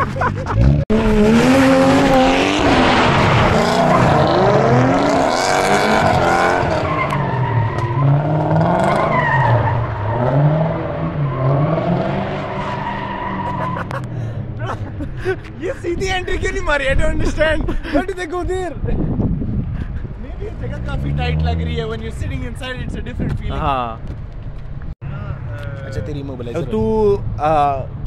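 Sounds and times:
car engines revving: 0:00.0 - 0:15.6, 0:19.6 - 0:22.9.

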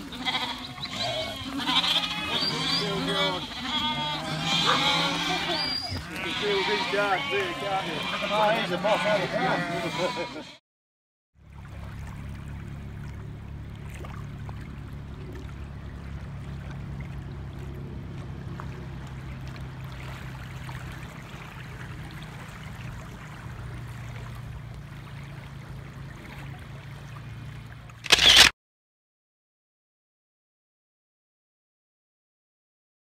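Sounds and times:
lake waves lapping at shore: 0:00.0 - 0:10.4, 0:11.4 - 0:28.5.

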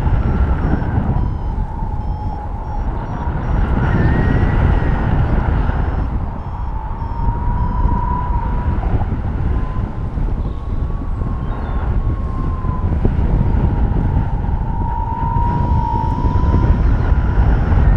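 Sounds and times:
wind rushing over microphone: 0:00.0 - 0:17.9
thin whistling tone: 0:00.4 - 0:05.0, 0:05.7 - 0:08.6, 0:10.4 - 0:12.5.

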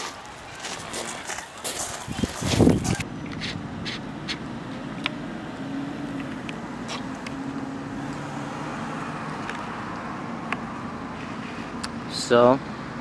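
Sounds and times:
vehicle engine humming: 0:00.4 - 0:13.0.

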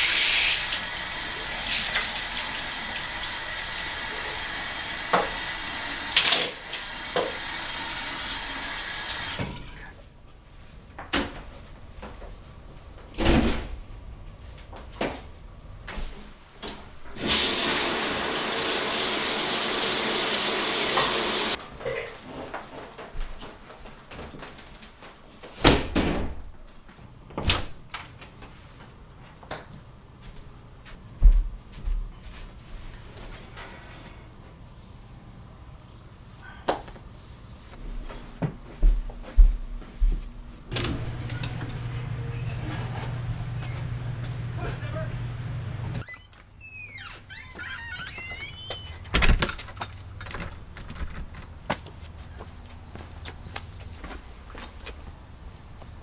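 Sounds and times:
sink tap running: 0:00.0 - 0:09.4, 0:17.2 - 0:21.6
shower running: 0:00.0 - 0:09.5, 0:17.2 - 0:21.6.

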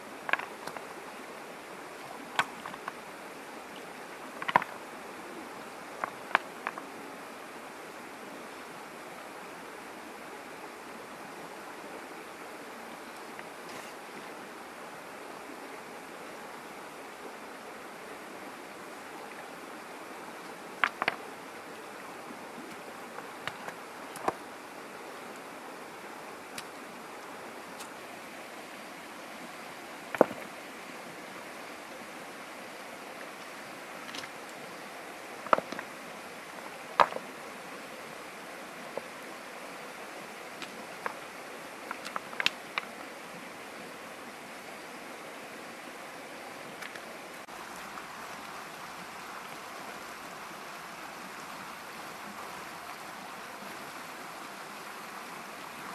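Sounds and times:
stream flowing: 0:00.0 - 0:55.9
river stones clacking together: 0:00.2 - 0:01.0, 0:02.2 - 0:03.0, 0:04.2 - 0:04.9, 0:05.9 - 0:07.0, 0:20.4 - 0:21.3, 0:22.7 - 0:24.5, 0:30.1 - 0:30.6, 0:33.2 - 0:37.3, 0:40.5 - 0:43.1.

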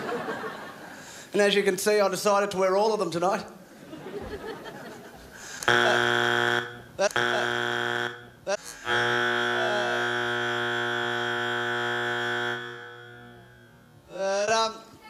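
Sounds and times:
electronic buzzer: 0:05.4 - 0:14.1.

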